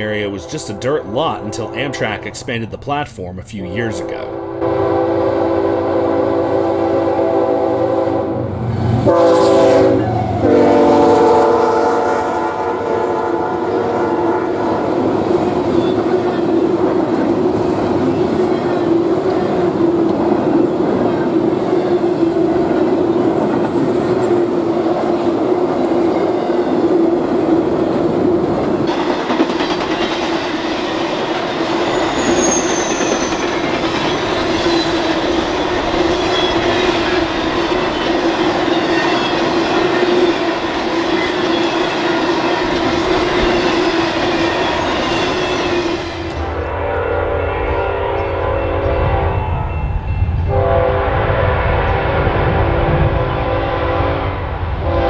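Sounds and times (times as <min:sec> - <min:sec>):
freight train rumbling past: 0:00.0 - 0:55.0
locomotive air horn: 0:04.0 - 0:14.8, 0:45.4 - 0:49.8, 0:50.5 - 0:55.0
train wheels on rails: 0:13.7 - 0:46.7.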